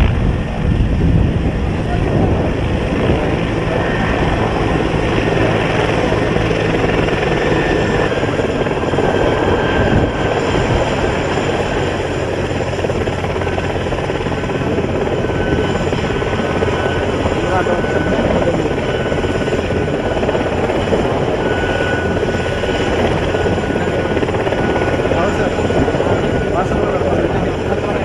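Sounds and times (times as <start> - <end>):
faint high turbine whine: 0.0 - 28.0
helicopter engine and rotor: 0.0 - 28.0.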